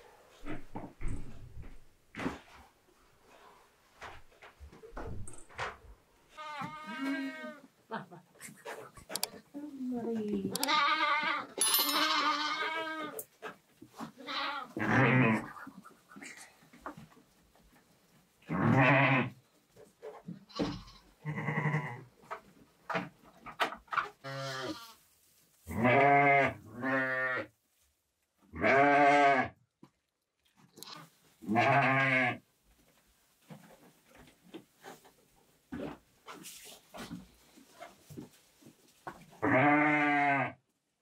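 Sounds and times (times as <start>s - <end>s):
goat bleating: 6.4s - 7.7s, 10.5s - 13.2s, 14.0s - 15.7s, 18.5s - 19.3s, 20.5s - 22.0s, 24.2s - 25.0s, 25.7s - 27.5s, 28.5s - 29.6s, 30.8s - 32.4s, 39.4s - 40.6s.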